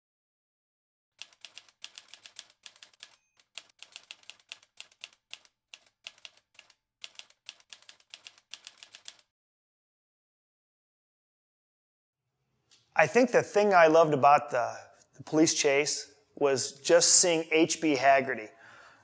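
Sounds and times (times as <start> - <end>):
typewriter keys clacking: 1.2 - 9.3
typewriter bell ringing: 2.0 - 4.1.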